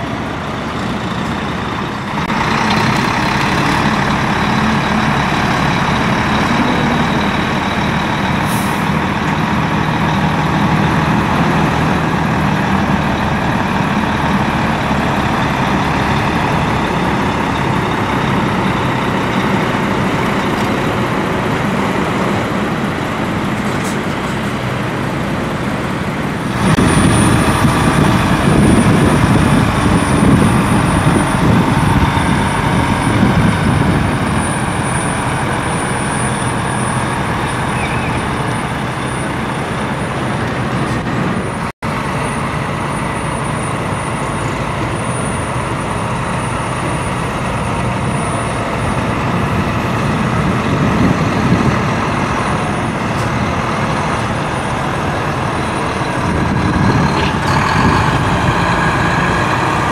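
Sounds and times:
truck diesel engine running: 0.0 - 59.9.

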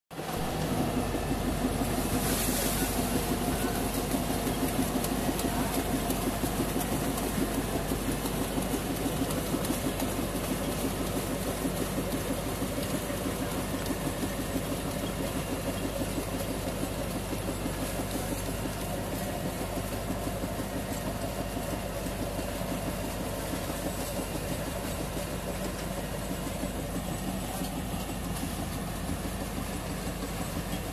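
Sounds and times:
rotavator churning soil: 0.2 - 30.9
tractor engine under load: 0.2 - 30.9.

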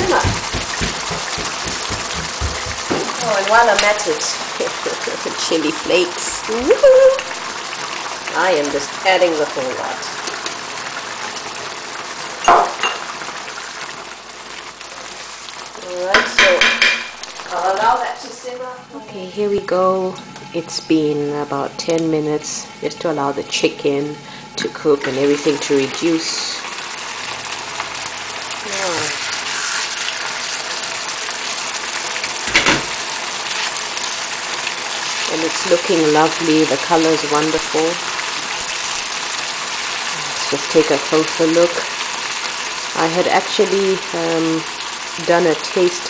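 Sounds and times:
wooden spatula stirring: 0.0 - 3.2
sauce bubbling and sizzling: 0.0 - 18.4, 19.4 - 46.0
short knock: 0.1 - 3.2
wooden spatula scraping wok: 29.0 - 30.8.

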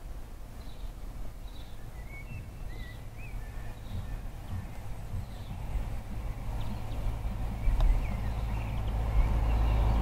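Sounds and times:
bird chirping: 0.6 - 10.0
diesel train rumbling past: 3.1 - 10.0.

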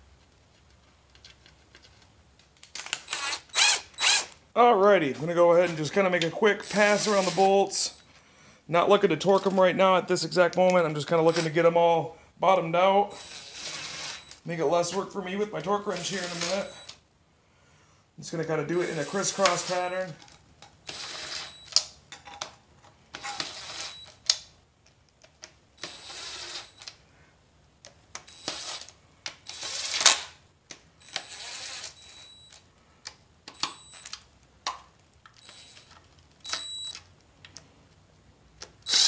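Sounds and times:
cordless power tool spinning: 3.0 - 4.3, 6.6 - 7.5, 13.1 - 14.3, 20.9 - 21.6.

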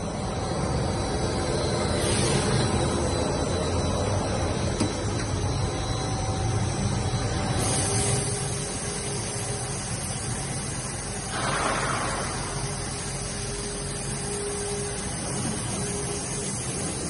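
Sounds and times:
constant hiss of air: 0.0 - 17.0
low machine hum: 0.0 - 17.0.

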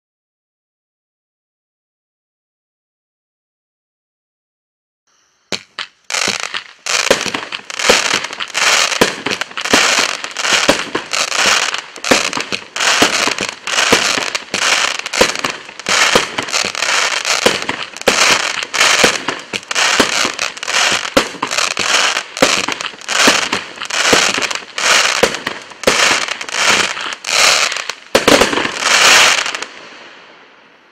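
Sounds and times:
fireworks cake firing shots: 5.5 - 29.8.

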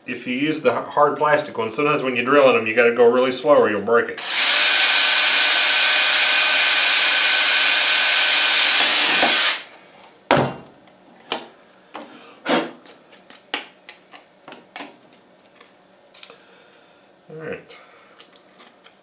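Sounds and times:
cordless drill boring through plastic: 4.2 - 9.7.

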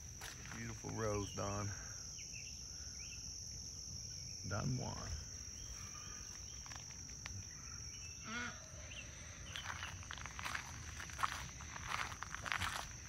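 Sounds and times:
footsteps on gravel: 0.0 - 1.3, 6.2 - 7.4, 9.4 - 13.0
insects buzzing: 0.0 - 13.0.

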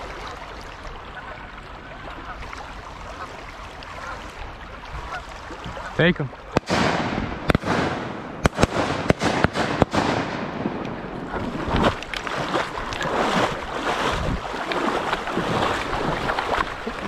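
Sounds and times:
river water rushing: 0.0 - 17.0
water splashing: 0.0 - 17.0
shotgun blasts: 6.5 - 11.2.

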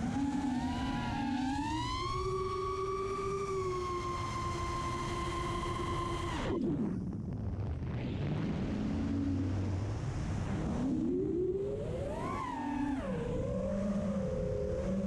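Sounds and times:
drone motors whining: 0.0 - 6.6.

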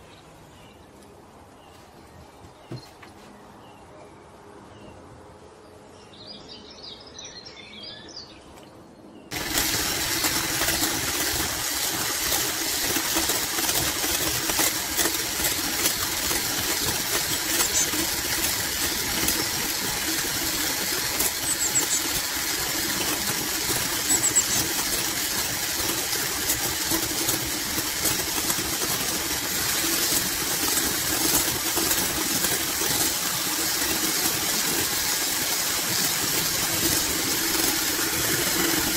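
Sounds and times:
electric hand mixer whipping: 9.3 - 38.9.

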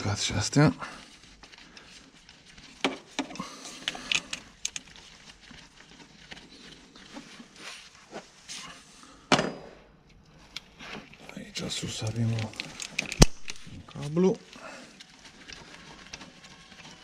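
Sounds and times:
light clicks and knocks of parts: 2.6 - 5.1, 10.0 - 17.0.

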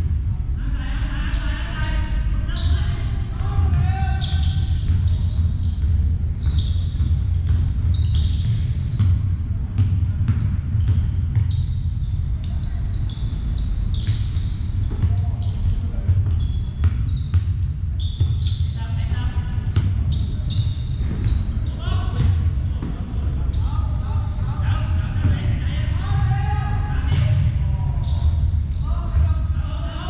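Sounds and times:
sneakers squeaking on court: 0.2 - 0.6, 2.5 - 24.0
basketball bouncing: 3.7 - 12.1, 13.9 - 18.7, 19.6 - 23.1.

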